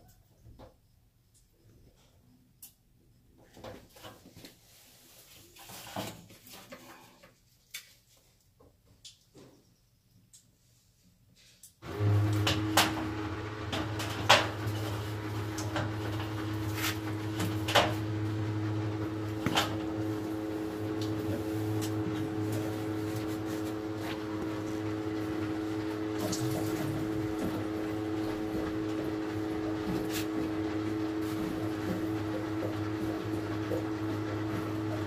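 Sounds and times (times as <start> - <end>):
electric pump humming: 11.8 - 35.0.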